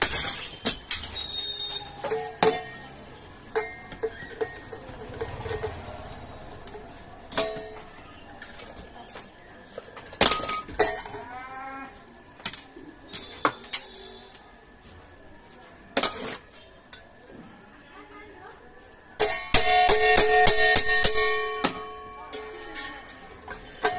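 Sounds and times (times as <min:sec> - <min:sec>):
tools striking steel pan: 0:00.0 - 0:07.8, 0:19.2 - 0:23.9.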